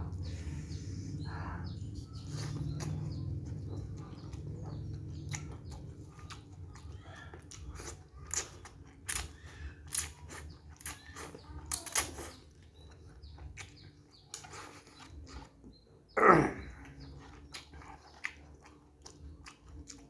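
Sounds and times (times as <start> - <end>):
steady low hum: 0.0 - 11.5
chewing rice: 1.9 - 20.0.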